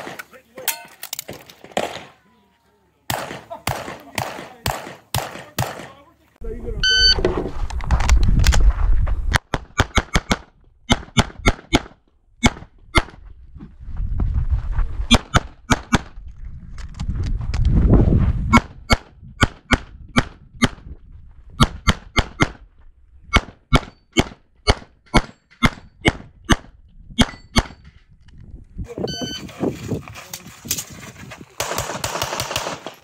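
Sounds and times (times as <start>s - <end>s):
rapid pistol shots: 1.6s - 2.1s, 3.1s - 6.0s, 9.5s - 13.2s, 31.6s - 33.0s.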